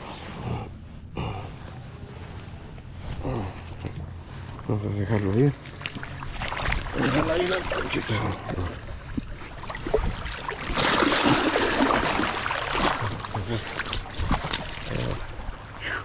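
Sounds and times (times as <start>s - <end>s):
fish splashing in shallow water: 4.6s - 15.8s.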